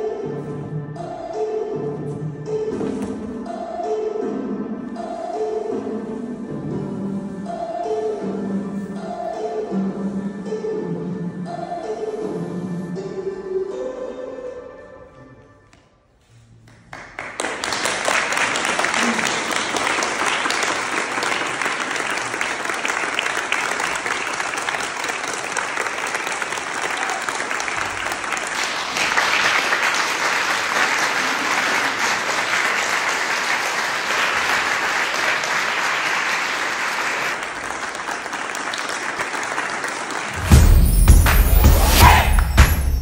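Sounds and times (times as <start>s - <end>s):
audience applauding: 16.7s - 42.8s.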